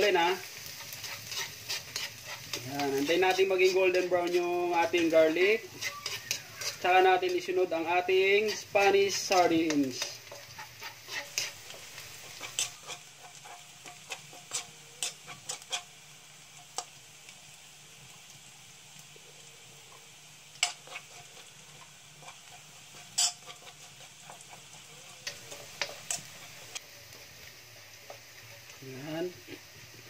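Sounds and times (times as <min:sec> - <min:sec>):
metal ladle scraping a wok: 0:00.0 - 0:15.9, 0:19.9 - 0:26.8
garlic sizzling in oil: 0:00.0 - 0:30.0.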